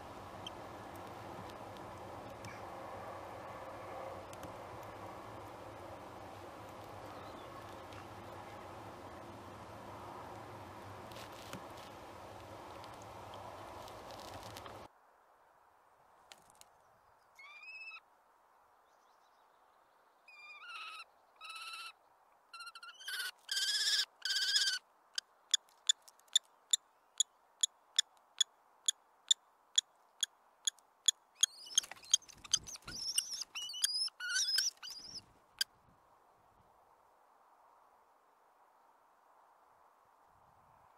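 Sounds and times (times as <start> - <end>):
kestrel sharp ticks: 29.3 - 35.2
kestrel whining calls: 31.4 - 35.2.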